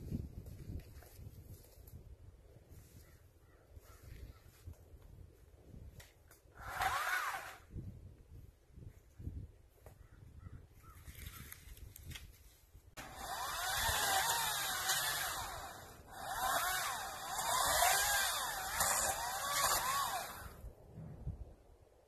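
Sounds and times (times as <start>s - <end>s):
battery chainsaw cutting branches: 6.6s - 7.8s, 13.0s - 20.7s.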